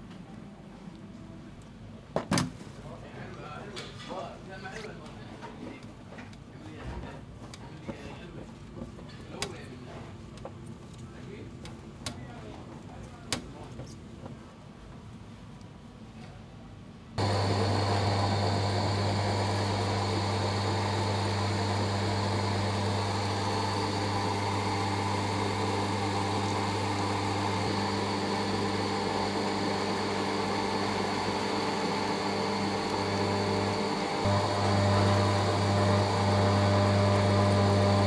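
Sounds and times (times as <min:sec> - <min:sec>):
electric motor humming: 0:17.2 - 0:38.0.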